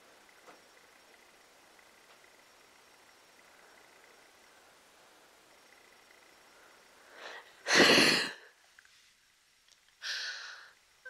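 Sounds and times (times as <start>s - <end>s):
person breathing in: 7.0s - 8.5s, 10.0s - 10.8s
sharp burst of breath: 7.1s - 8.5s, 10.0s - 10.8s.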